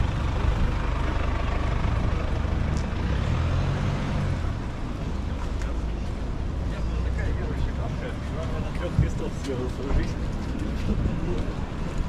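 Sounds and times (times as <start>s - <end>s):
traffic rumble on wet pavement: 0.0s - 12.0s.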